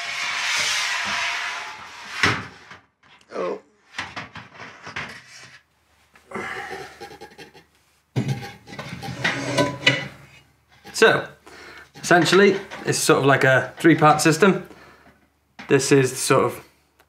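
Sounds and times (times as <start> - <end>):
metal pipe scraping in boiler: 0.0 - 2.7, 6.8 - 14.3
metal pipe clunking and knocking: 6.7 - 11.0, 11.9 - 13.2.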